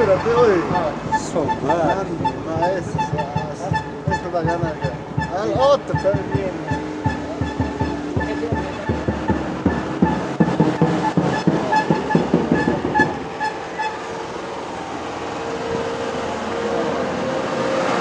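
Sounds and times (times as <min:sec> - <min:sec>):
held tone: 0:00.0 - 0:14.3
horn toots: 0:00.0 - 0:14.4
vehicle and street noise: 0:00.0 - 0:18.0
music with fast drumbeat: 0:01.5 - 0:13.2.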